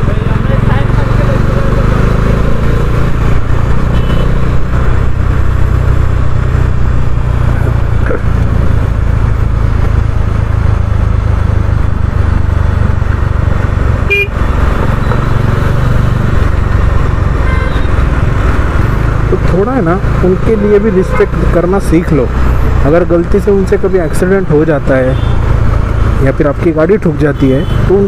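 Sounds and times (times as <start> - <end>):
motorcycle engine running: 0.0 - 22.7
vehicle horn toots: 3.9 - 4.4, 14.1 - 14.3, 17.4 - 18.0.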